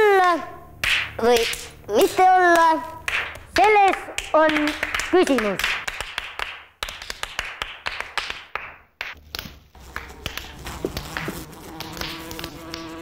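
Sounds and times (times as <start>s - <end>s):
hand claps and taps: 0.2s - 1.7s, 2.6s - 13.0s
thin buzzing drone: 9.7s - 13.0s.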